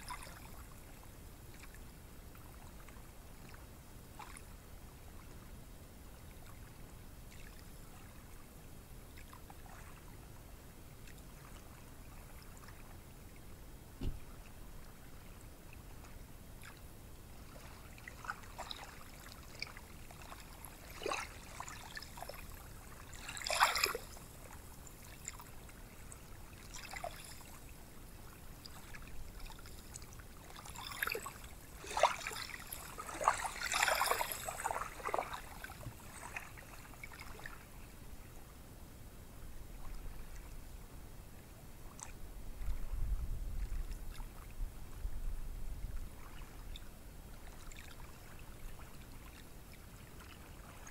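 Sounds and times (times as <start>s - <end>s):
small waves washing on sand: 23.0s - 24.6s, 30.4s - 37.5s.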